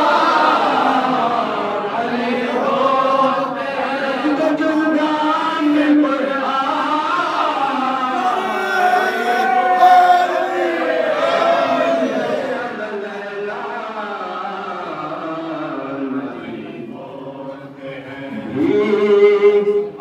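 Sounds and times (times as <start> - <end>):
men chanting in chorus: 0.0 - 20.0.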